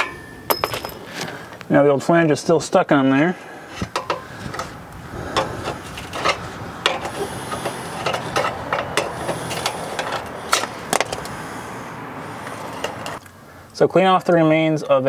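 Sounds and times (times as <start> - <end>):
pry bar scraping metal: 3.6 - 11.4, 12.2 - 13.2
metal taps and clicks: 3.9 - 4.7.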